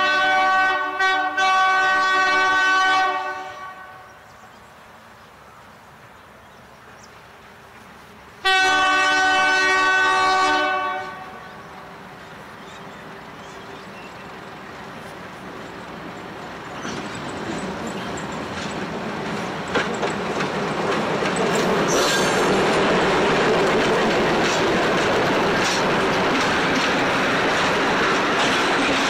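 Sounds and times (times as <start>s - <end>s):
diesel locomotive passing: 0.0s - 29.0s
wheels clicking over rail joints: 13.4s - 29.0s.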